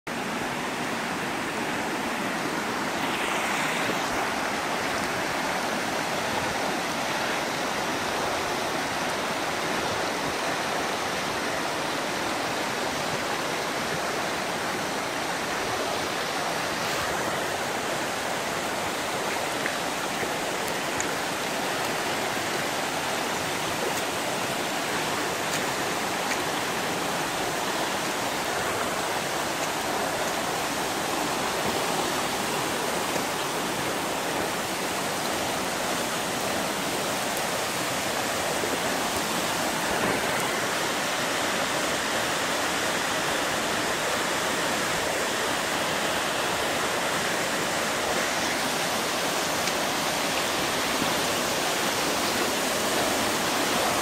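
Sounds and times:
waterfall rushing: 0:00.1 - 0:54.0.

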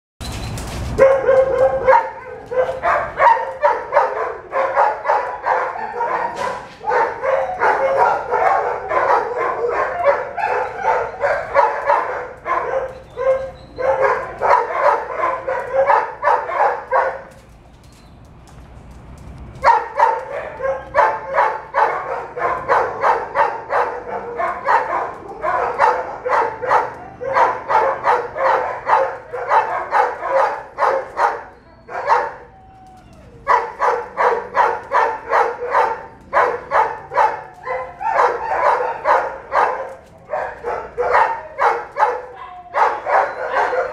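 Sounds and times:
dog barking: 0:01.0 - 0:17.4, 0:19.6 - 0:32.5, 0:33.4 - 0:43.9.

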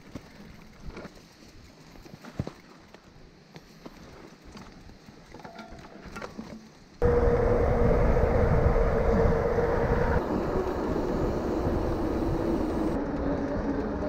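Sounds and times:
mountain bike ride noise: 0:00.0 - 0:14.0
low hum: 0:07.0 - 0:13.6.

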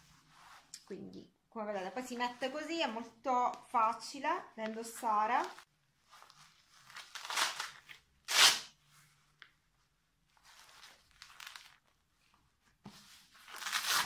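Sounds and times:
velcro ripping: 0:06.8 - 0:08.8, 0:10.6 - 0:11.8, 0:13.5 - 0:14.0.

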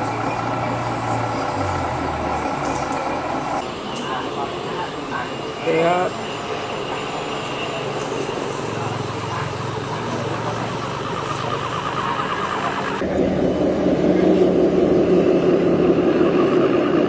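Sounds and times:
toy truck motor running: 0:05.5 - 0:17.0.

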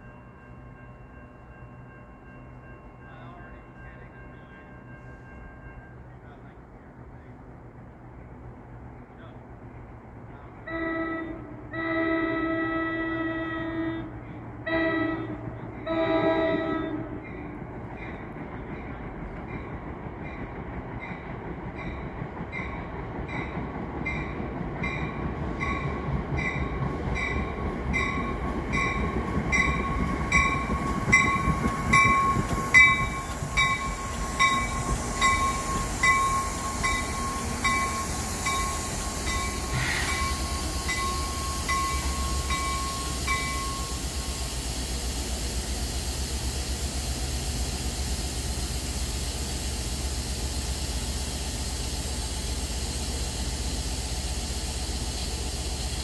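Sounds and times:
train wheels rumbling: 0:00.0 - 0:56.0
hiss from standing train: 0:25.1 - 0:56.0.

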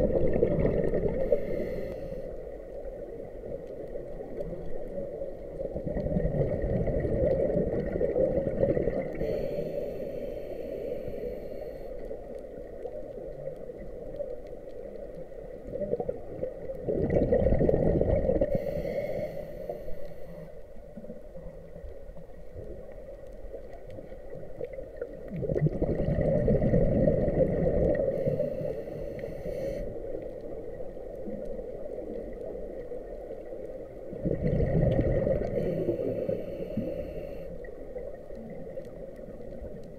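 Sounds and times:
diver exhaling bubbles: 0:00.0 - 0:01.4, 0:05.8 - 0:09.2, 0:16.8 - 0:18.6, 0:25.3 - 0:28.7, 0:34.1 - 0:36.9
low wash of water: 0:00.0 - 0:39.9
regulator hiss: 0:09.1 - 0:12.1, 0:28.2 - 0:30.0, 0:35.5 - 0:37.6.

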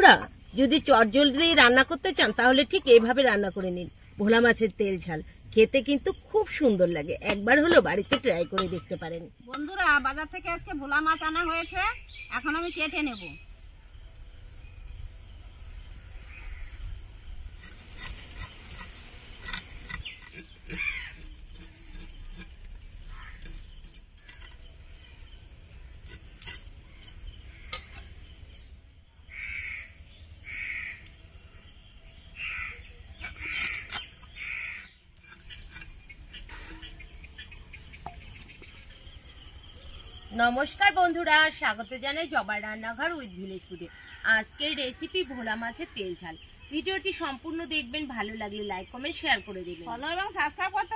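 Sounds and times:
crow cawing: 0:20.7 - 0:21.2, 0:29.3 - 0:31.1, 0:32.4 - 0:34.9.

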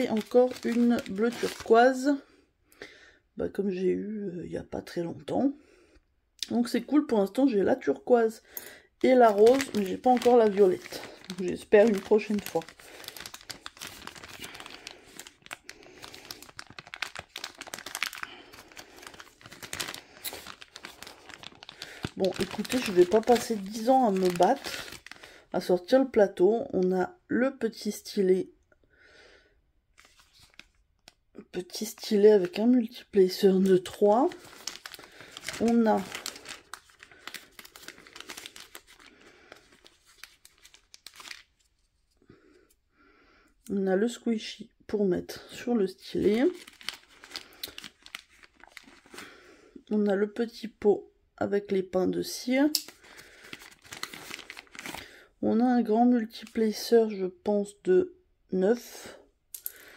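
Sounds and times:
plastic bag crinkling: 0:00.0 - 0:02.0, 0:08.5 - 0:25.9, 0:30.0 - 0:30.8, 0:31.8 - 0:41.8, 0:45.5 - 0:49.5, 0:52.7 - 0:55.3.

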